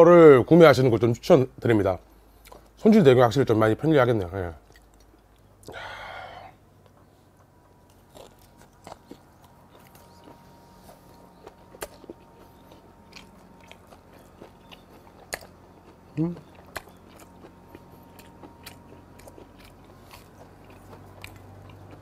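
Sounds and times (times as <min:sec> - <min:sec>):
man chewing food: 0:02.0 - 0:02.8, 0:04.6 - 0:05.9, 0:06.8 - 0:22.0.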